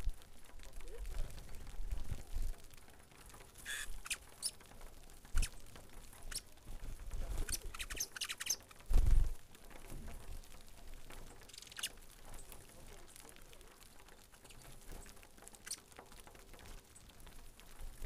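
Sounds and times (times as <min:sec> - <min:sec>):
finches chirping: 0:03.7 - 0:04.6, 0:07.4 - 0:08.6, 0:11.5 - 0:11.9.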